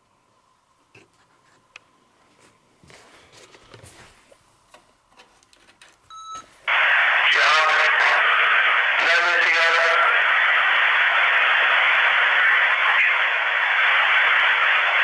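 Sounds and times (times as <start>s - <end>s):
faint clicks and knocks: 4.7s - 6.1s.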